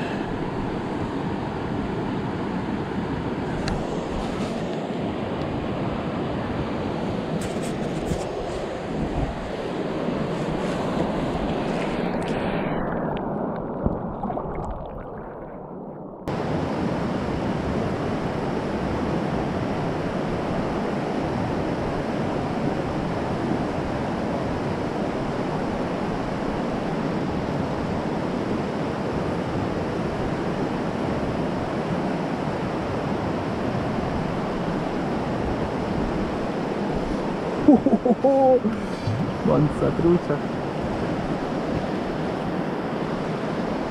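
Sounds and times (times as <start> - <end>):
muffled underwater rush: 10.3 - 16.3, 38.8 - 40.4.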